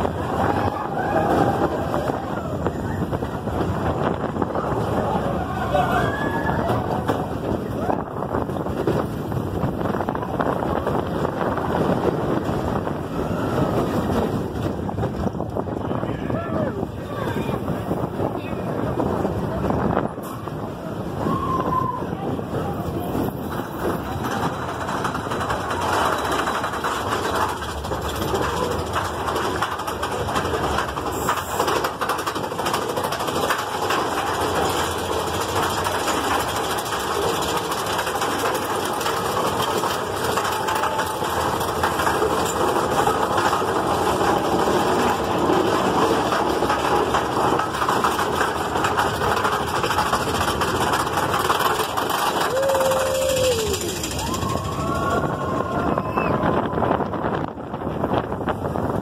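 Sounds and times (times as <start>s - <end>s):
roller coaster rumbling on track: 0.0s - 59.0s
rattling clatter: 22.8s - 58.9s.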